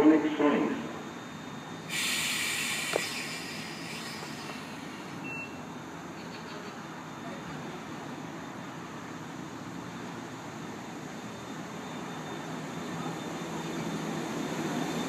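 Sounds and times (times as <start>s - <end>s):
train running noise: 0.0s - 15.0s
compressed air hiss: 1.8s - 5.6s
short high beep: 5.2s - 5.6s.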